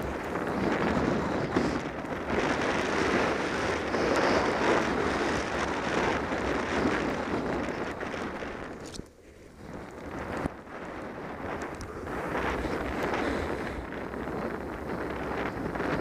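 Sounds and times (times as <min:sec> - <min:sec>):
skis scraping through snow: 0:00.0 - 0:16.0
wind buffeting microphone: 0:00.0 - 0:16.0.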